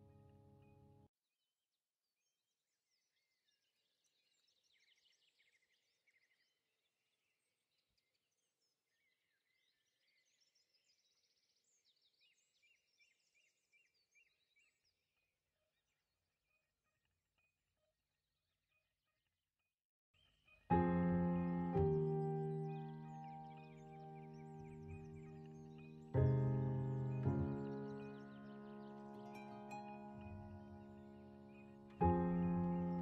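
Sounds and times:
birds chirping and trilling: 20.2 - 33.0.

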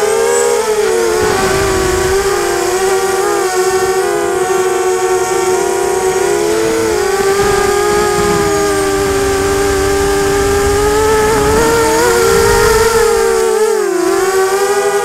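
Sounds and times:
quadcopter motors buzzing: 0.0 - 15.0
wind on microphone: 0.7 - 14.6.

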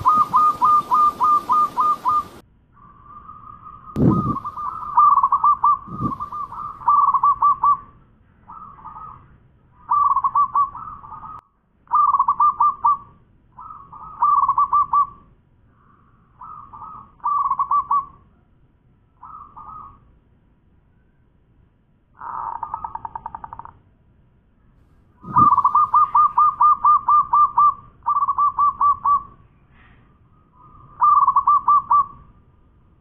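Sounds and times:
dove cooing: 0.0 - 2.4, 4.0 - 7.8, 9.9 - 13.0, 16.4 - 18.1, 25.2 - 29.3, 30.6 - 32.2.

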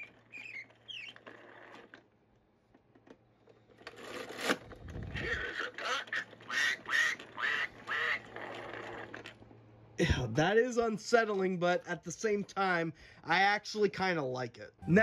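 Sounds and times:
plastic mechanism clattering: 0.0 - 7.4.

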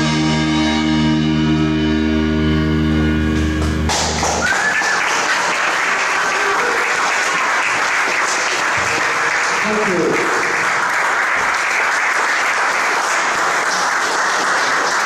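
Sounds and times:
rock band chord ringing: 0.0 - 4.2
audience applause: 3.4 - 15.0.

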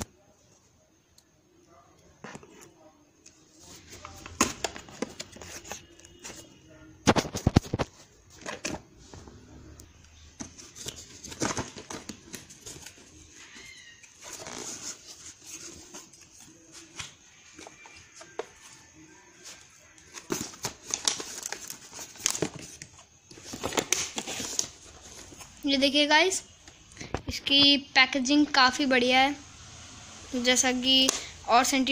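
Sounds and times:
cardboard scraping and rustling: 10.4 - 18.8.

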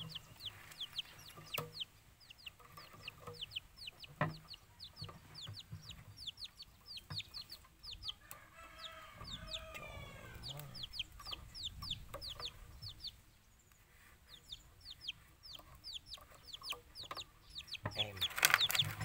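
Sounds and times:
chickens peeping: 0.0 - 19.0
lower chicken call: 8.2 - 10.8.

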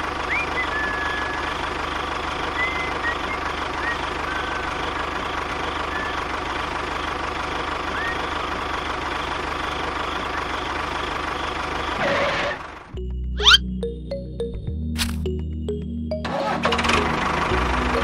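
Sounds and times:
tractor engine running: 0.0 - 18.0
short high chirps: 13.4 - 13.6.

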